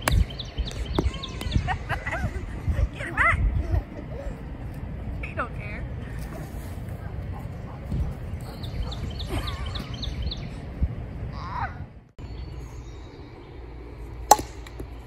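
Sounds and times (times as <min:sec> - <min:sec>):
birds chirping: 0:00.0 - 0:06.3, 0:06.9 - 0:15.0
wind on the microphone: 0:00.0 - 0:12.1
toy bat hitting a ball: 0:14.3 - 0:14.9.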